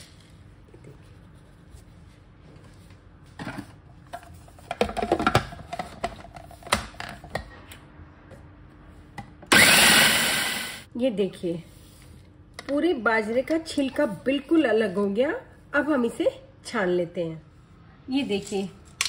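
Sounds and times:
food processor motor running: 0:09.5 - 0:10.8.

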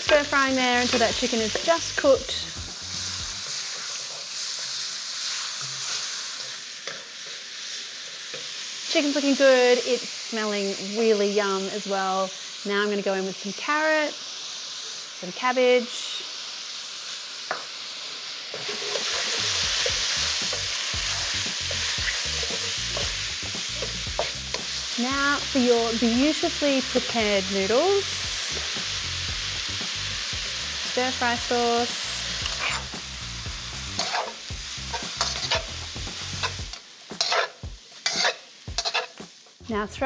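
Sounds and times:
food sizzling in a wok: 0:00.0 - 0:40.0
scraping against a wok: 0:18.5 - 0:23.2, 0:32.4 - 0:32.9, 0:33.9 - 0:35.8, 0:37.2 - 0:39.2.

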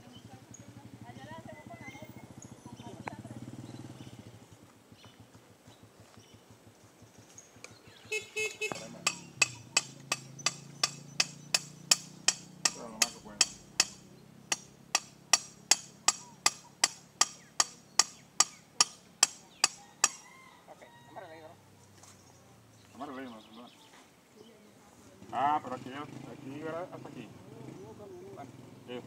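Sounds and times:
hammer blows on a stake: 0:08.4 - 0:20.2.

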